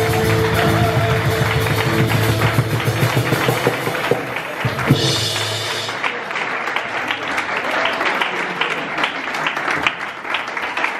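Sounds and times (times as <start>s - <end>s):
band playing last note: 0.0s - 6.4s
crowd applauding: 0.0s - 10.9s.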